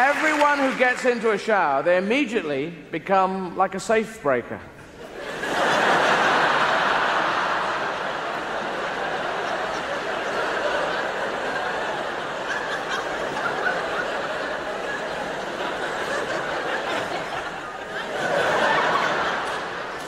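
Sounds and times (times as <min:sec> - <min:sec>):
audience laughing: 0:04.9 - 0:20.0.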